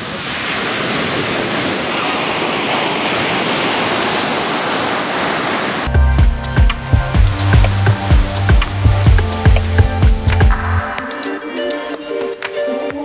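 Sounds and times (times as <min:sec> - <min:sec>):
ocean surf breaking: 0:00.0 - 0:05.9, 0:06.7 - 0:13.0
music with heavy drum beats: 0:05.9 - 0:11.4.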